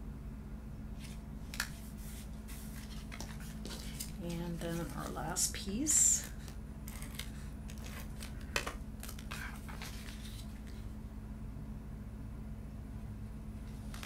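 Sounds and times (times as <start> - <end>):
steady low hum: 0.0 - 14.0
cardstock rustling: 1.0 - 5.4, 6.2 - 10.9.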